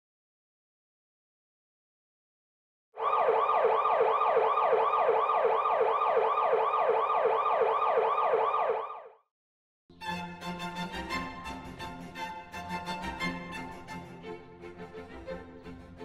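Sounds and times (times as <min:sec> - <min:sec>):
siren wailing in fast yelp: 0:03.0 - 0:09.2.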